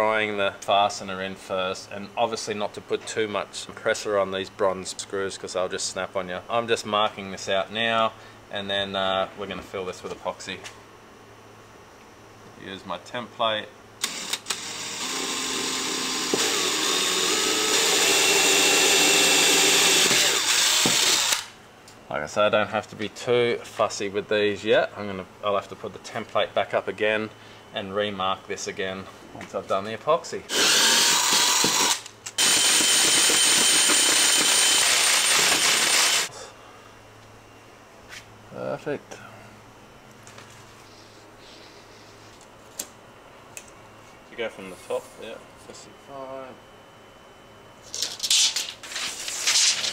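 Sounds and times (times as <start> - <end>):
cordless drill boring: 14.0 - 21.5, 30.5 - 36.3
drill clicks: 14.0 - 21.5, 30.5 - 36.3.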